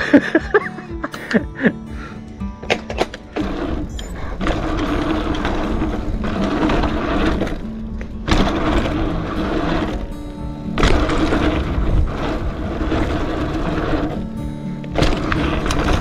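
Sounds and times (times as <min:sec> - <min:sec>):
bike jolts: 0:00.0 - 0:16.0
bike tyres rumbling over dirt: 0:01.5 - 0:16.0
wind buffeting microphone: 0:03.2 - 0:16.0.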